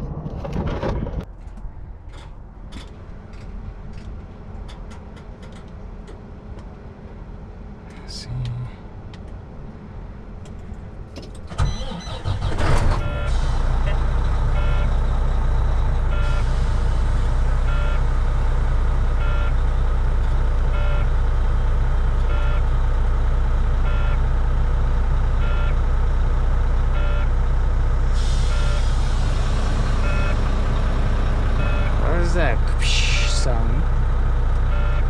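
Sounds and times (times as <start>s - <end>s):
diesel engine idling: 11.5s - 35.0s.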